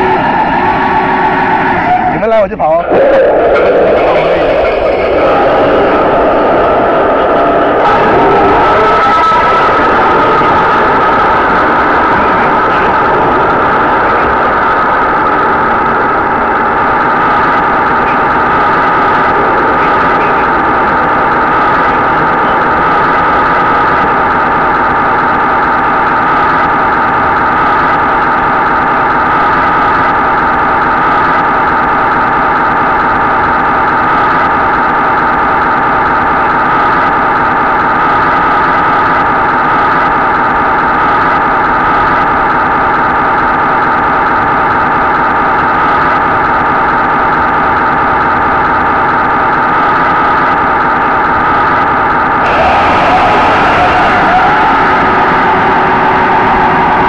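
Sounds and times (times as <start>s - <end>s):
model tank engine idling drone: 0.0s - 57.0s.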